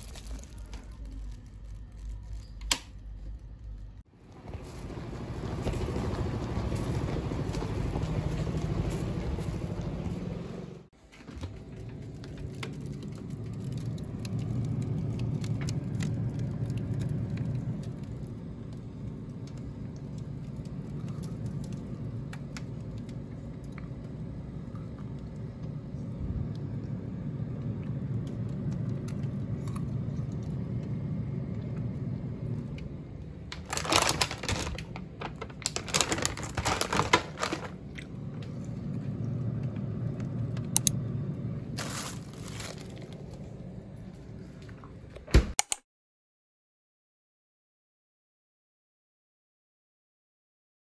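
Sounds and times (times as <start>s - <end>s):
plastic bags crinkling: 0.0s - 3.3s, 11.7s - 18.3s, 33.4s - 38.3s, 41.7s - 43.5s
steady low rumble: 0.0s - 10.9s, 11.5s - 45.2s.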